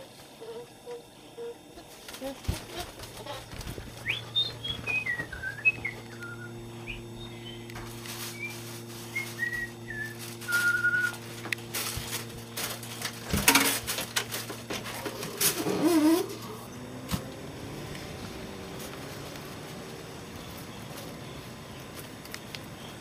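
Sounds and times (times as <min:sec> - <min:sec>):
steady low hum: 0:00.0 - 0:23.0
person whistling a tune: 0:04.1 - 0:07.0, 0:08.4 - 0:11.2.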